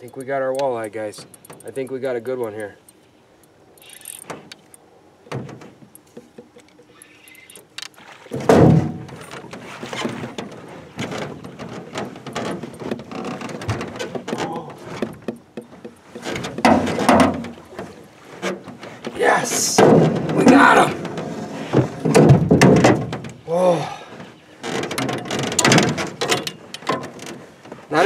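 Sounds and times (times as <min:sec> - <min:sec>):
thumps on aluminum boat hull: 0:05.3 - 0:06.7, 0:08.3 - 0:23.5, 0:24.2 - 0:27.8.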